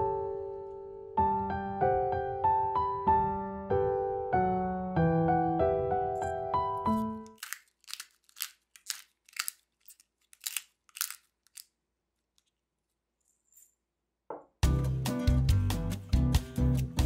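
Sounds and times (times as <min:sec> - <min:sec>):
pepper mill grinding: 0:06.2 - 0:11.8.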